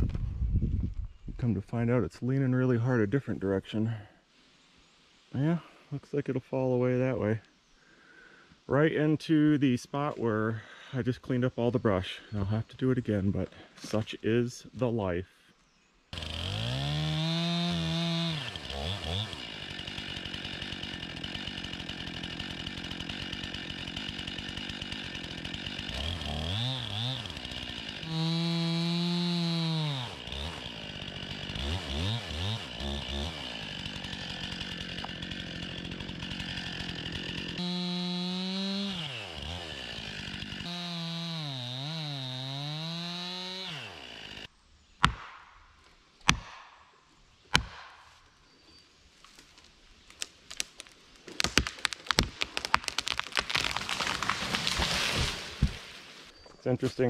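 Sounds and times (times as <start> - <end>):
chainsaw cutting tree: 16.1 - 45.5, 47.5 - 48.2, 50.2 - 56.3
tree cracking: 16.2 - 44.5, 49.2 - 56.3.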